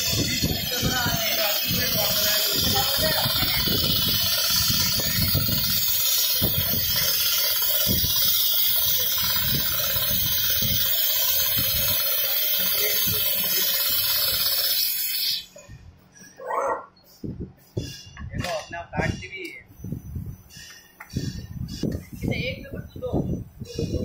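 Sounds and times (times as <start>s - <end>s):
sewing machine hissing: 0.0s - 15.6s.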